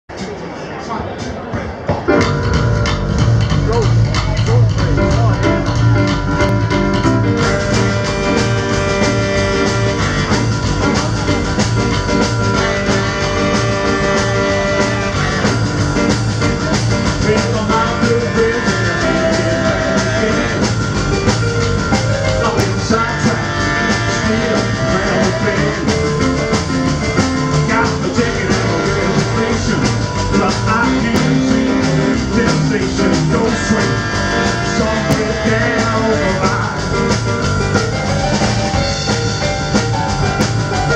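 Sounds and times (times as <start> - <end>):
drums: 0.0 - 40.9
stage piano: 0.1 - 40.9
upright bass: 2.0 - 40.9
saxophones: 2.1 - 40.9
man singing into microphone: 17.1 - 20.9, 22.2 - 26.3, 27.5 - 37.2.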